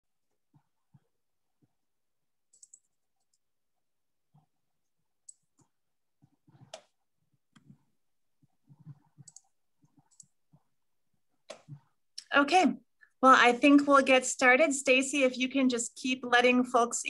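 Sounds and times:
faint clicks and soft knocks: 0:00.2 - 0:12.3.

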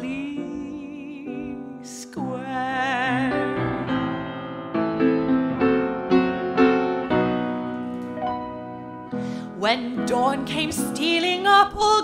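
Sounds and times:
woman singing with vibrato: 0:00.0 - 0:04.3, 0:09.4 - 0:12.0
upright piano: 0:00.0 - 0:12.0.

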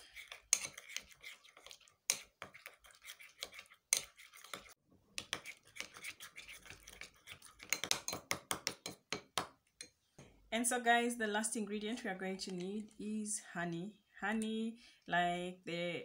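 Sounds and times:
spoon stirring paste in glass bowl: 0:00.0 - 0:10.0, 0:12.0 - 0:13.2.

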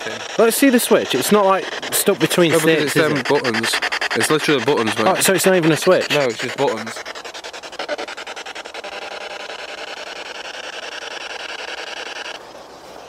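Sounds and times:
radio static chopping: 0:00.0 - 0:07.2.

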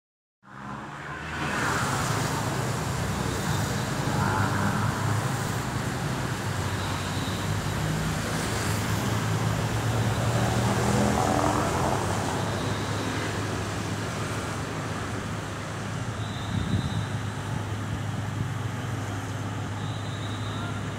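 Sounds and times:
road traffic: 0:00.4 - 0:20.9.

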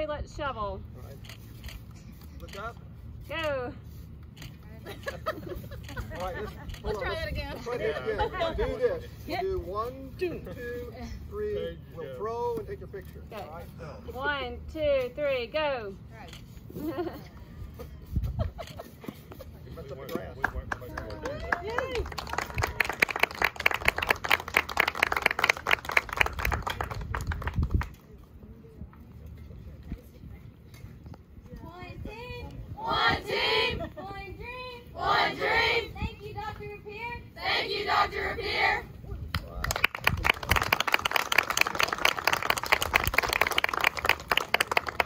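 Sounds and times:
crowd clapping: 0:20.4 - 0:27.9, 0:39.3 - 0:45.0
people applauding: 0:20.4 - 0:27.9, 0:39.4 - 0:45.0.

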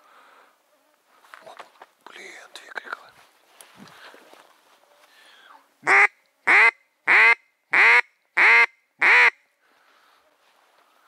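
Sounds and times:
duck call quacks: 0:05.8 - 0:09.4.

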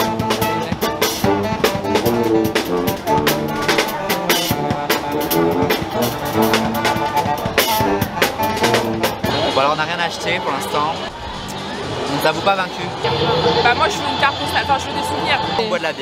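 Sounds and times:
drum kit steady beat: 0:00.0 - 0:09.6
saxophone: 0:00.0 - 0:09.8, 0:13.0 - 0:15.6
trombone: 0:00.0 - 0:10.0
trumpets: 0:00.0 - 0:16.0.

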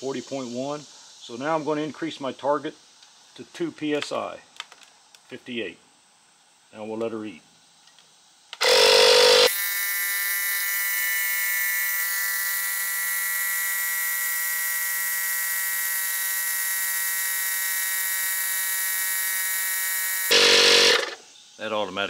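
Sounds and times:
air compressor whining: 0:08.6 - 0:21.2.

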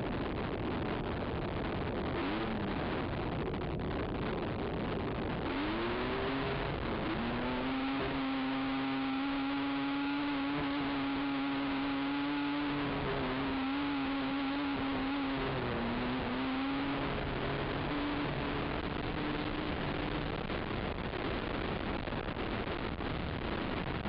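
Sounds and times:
wind noise on camera: 0:00.0 - 0:24.0
atv engine at high revs: 0:02.1 - 0:02.9, 0:05.3 - 0:21.7.

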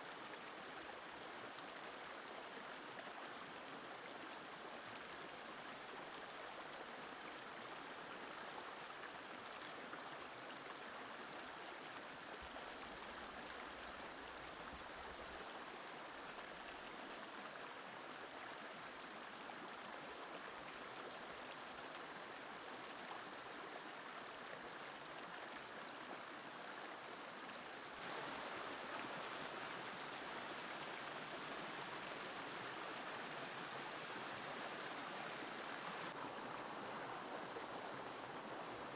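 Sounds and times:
stream rushing over stones: 0:27.6 - 0:38.9.

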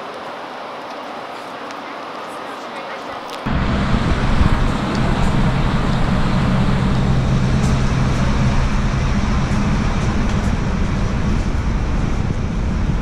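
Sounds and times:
street traffic: 0:00.0 - 0:13.0
large vehicle engine hum: 0:03.5 - 0:13.0.

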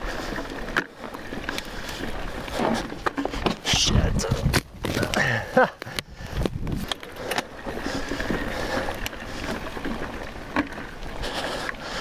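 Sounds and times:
tyre and wind rush: 0:02.0 - 0:09.6.

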